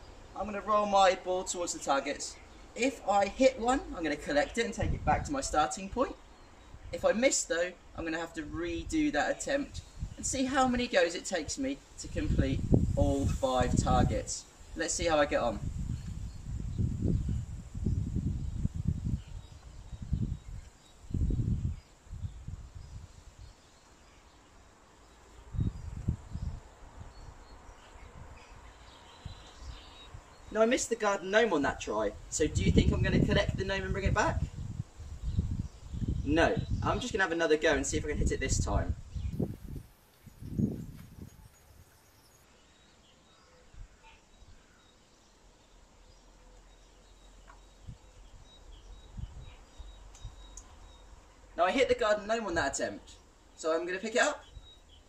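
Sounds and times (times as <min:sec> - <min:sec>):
wind gusts on microphone: 0:04.8 - 0:06.0, 0:09.7 - 0:10.8, 0:12.0 - 0:23.5, 0:25.4 - 0:30.5, 0:32.1 - 0:41.9, 0:47.8 - 0:50.5
faint bird chirps: 0:39.1 - 0:51.6.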